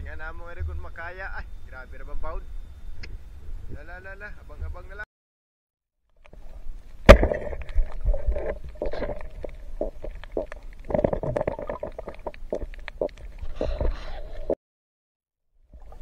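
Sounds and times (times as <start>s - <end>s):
clicks and knocks underwater: 6.1s - 14.6s
low underwater rumble: 6.3s - 14.5s
bubbling: 6.3s - 14.6s.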